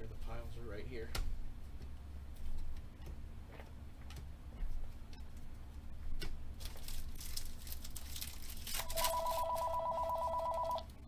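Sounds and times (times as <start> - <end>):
foil pack tearing and crinkling: 6.6 - 9.7
telephone ringing: 8.8 - 10.9.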